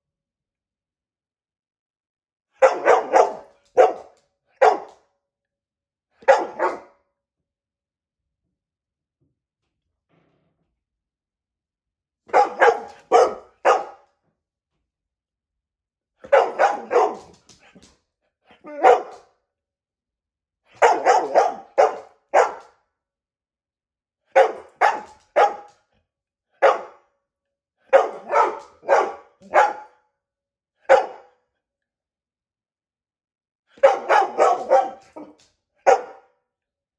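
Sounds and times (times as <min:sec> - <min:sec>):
dog barking loudly: 0:02.6 - 0:05.0, 0:06.2 - 0:06.9, 0:12.3 - 0:14.0, 0:16.2 - 0:17.4, 0:18.7 - 0:19.2, 0:20.8 - 0:22.7, 0:24.3 - 0:25.7, 0:26.6 - 0:27.0, 0:27.9 - 0:30.0, 0:30.8 - 0:31.4, 0:33.8 - 0:36.3.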